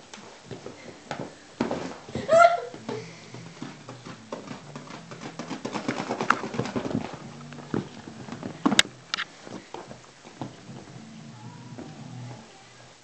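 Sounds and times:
stick tapping on leather: 2.8s - 10.9s.

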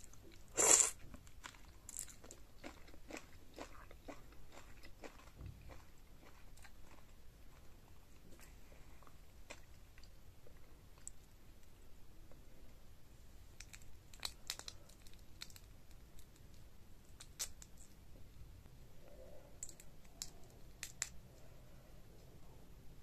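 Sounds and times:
shrimp shells cracking: 13.6s - 16.6s, 17.2s - 17.9s.

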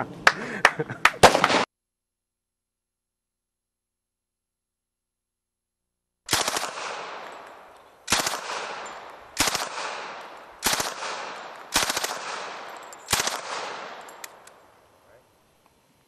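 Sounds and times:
automatic gun firing bursts: 6.3s - 7.4s, 8.1s - 14.4s.

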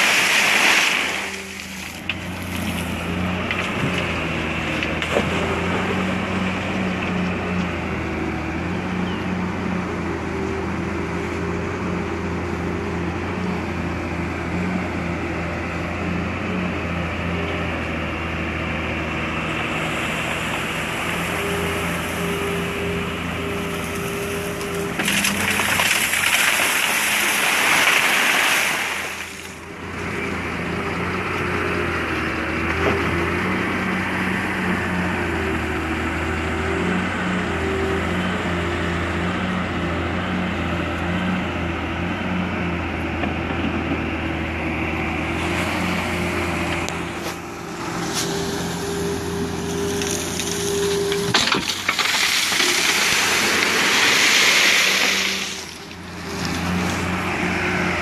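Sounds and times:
gravel pouring into steel truck bed: 0.0s - 2.5s, 25.0s - 29.5s, 50.0s - 55.9s
excavator diesel engine: 0.0s - 58.0s.

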